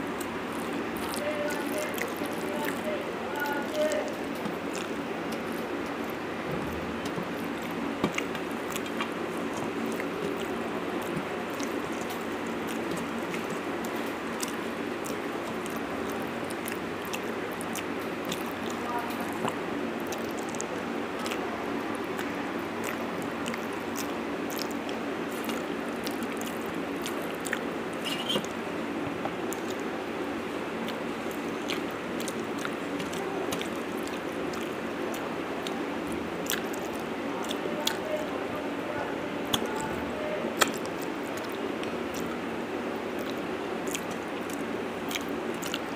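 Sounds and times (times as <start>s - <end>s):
chewing: 0.0s - 45.9s
steady background hum: 0.0s - 45.9s.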